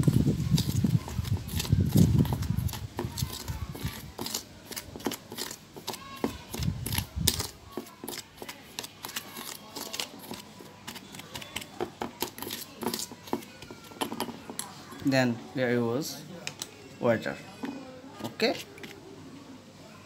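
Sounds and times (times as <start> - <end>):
spoon scraping metal bowl: 0.5 - 14.7.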